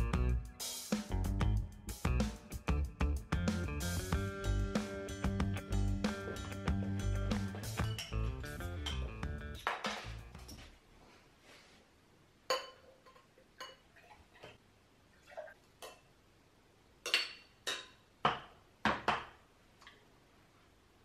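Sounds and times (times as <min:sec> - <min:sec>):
beer glasses clinking: 0:07.6 - 0:09.2.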